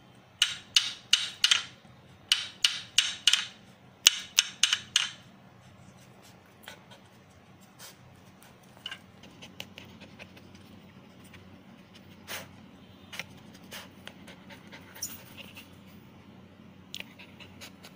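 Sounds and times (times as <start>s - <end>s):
stick knocking on floor: 0.4s - 5.2s
faint scratching and clicks: 5.6s - 12.2s
puppy panting: 5.7s - 12.6s, 13.2s - 16.0s, 17.0s - 17.9s.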